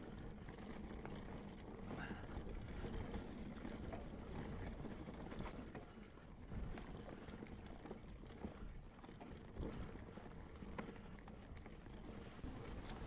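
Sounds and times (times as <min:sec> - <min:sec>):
bike rattling and clicking: 0:00.0 - 0:13.0
wind rumble on microphone: 0:12.1 - 0:13.0.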